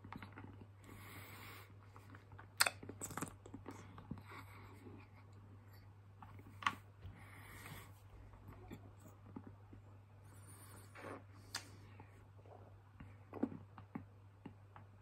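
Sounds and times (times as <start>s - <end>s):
soft breaths: 0.6s - 2.3s, 3.7s - 13.5s
wet mouth clicks and smacks: 2.6s - 3.6s.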